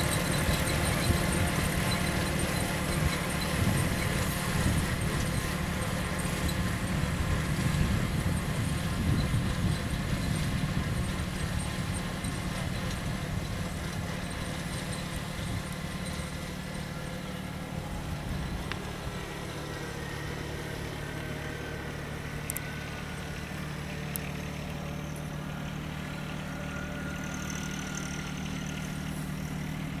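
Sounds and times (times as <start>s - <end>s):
tractor diesel engine running: 0.0s - 30.0s.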